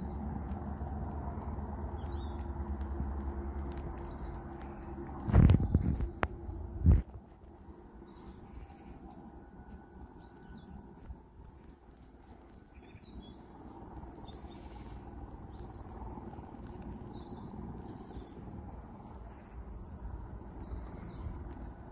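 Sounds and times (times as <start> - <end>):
low outdoor rumble: 0.0 - 21.4
birds chirping: 3.9 - 11.0, 11.9 - 18.7.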